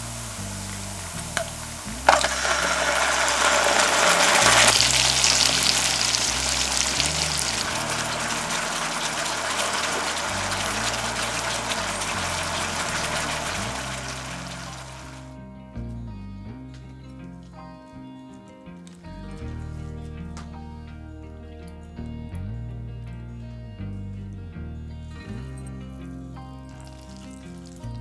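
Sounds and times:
sauce sizzling in a frying pan: 0:00.0 - 0:15.3, 0:26.7 - 0:27.8
soft background music with bass: 0:00.0 - 0:28.0.

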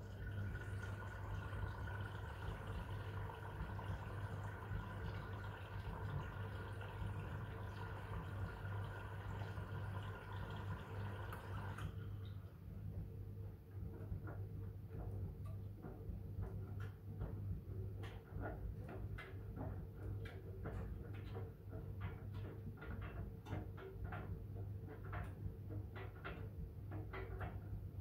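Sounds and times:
washing machine motor hum: 0:00.0 - 0:28.0
laundry clicking in drum: 0:13.7 - 0:28.0.

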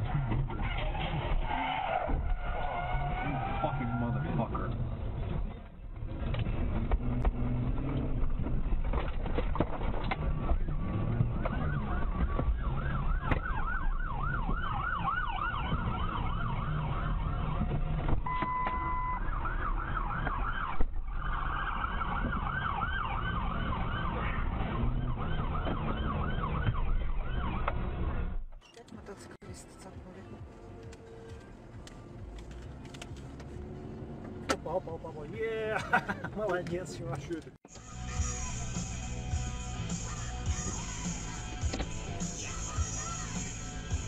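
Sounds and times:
road and engine noise: 0:00.0 - 0:44.0
police siren yelping: 0:10.6 - 0:27.8.

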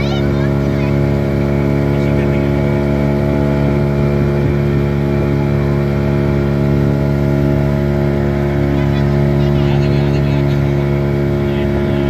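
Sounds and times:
speedboat engine running: 0:00.0 - 0:12.0.

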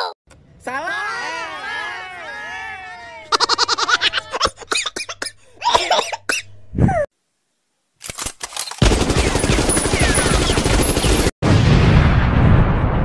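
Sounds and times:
rapid automatic gunfire: 0:08.8 - 0:11.3.

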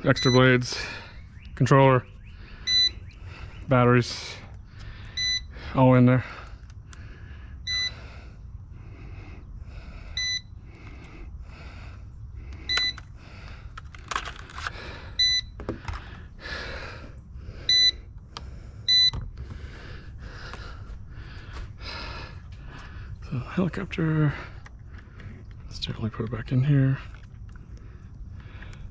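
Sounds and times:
short electronic beep: 0:02.7 - 0:03.0.

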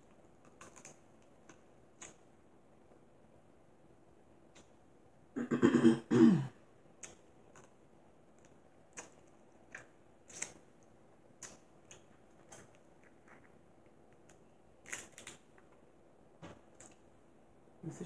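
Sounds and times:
woman clearing her throat: 0:05.4 - 0:06.6.

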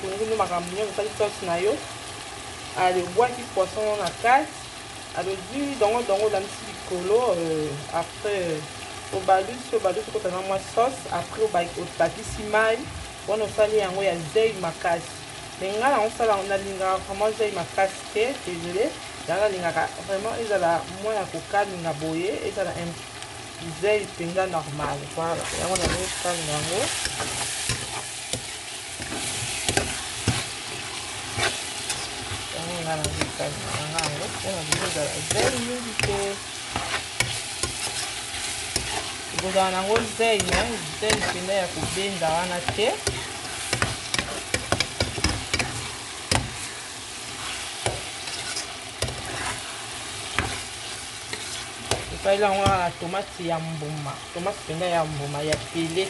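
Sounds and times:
vegetables sizzling in frying pan: 0:00.0 - 0:56.0
metal spoon scraping pan: 0:25.4 - 0:52.8.

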